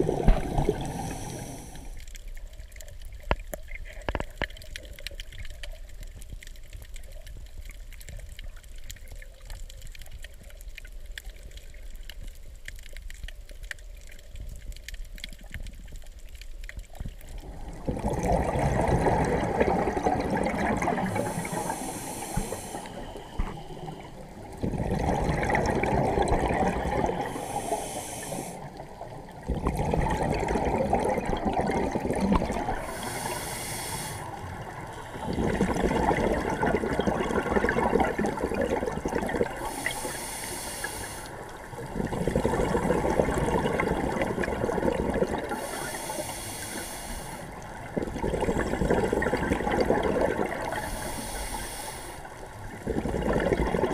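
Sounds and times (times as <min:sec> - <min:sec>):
exhaled bubbles rushing: 0:00.0 - 0:02.0, 0:17.0 - 0:27.7, 0:28.6 - 0:33.4, 0:34.3 - 0:40.1, 0:41.5 - 0:45.7, 0:47.5 - 0:51.1, 0:52.5 - 0:53.9
regulator inhale hiss: 0:00.3 - 0:02.2, 0:21.0 - 0:24.4, 0:27.1 - 0:28.8, 0:32.8 - 0:35.3, 0:39.6 - 0:41.5, 0:45.5 - 0:47.7, 0:50.6 - 0:52.6.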